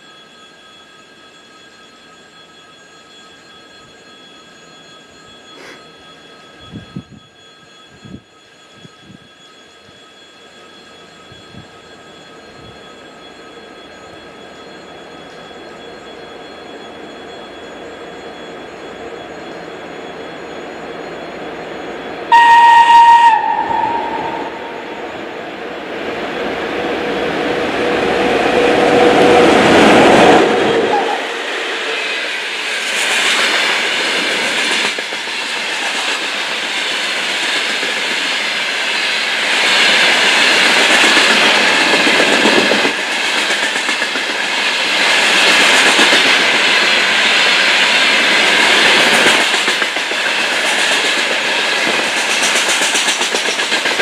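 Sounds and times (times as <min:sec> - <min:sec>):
train rumbling past: 0:11.2 - 0:54.0
train horn blast: 0:22.3 - 0:25.0.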